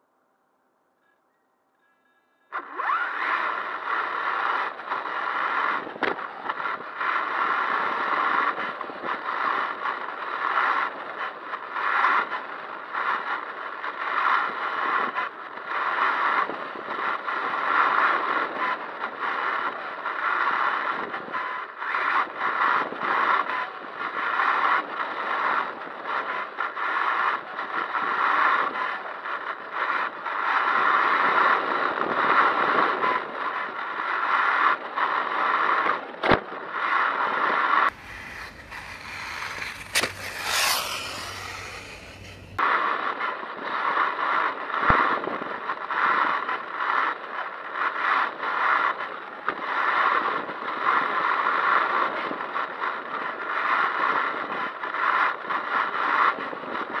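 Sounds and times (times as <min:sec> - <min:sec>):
rc car drivetrain whine: 0:02.6 - 0:08.3, 0:37.9 - 0:42.6
rc car passing by: 0:37.9 - 0:42.6.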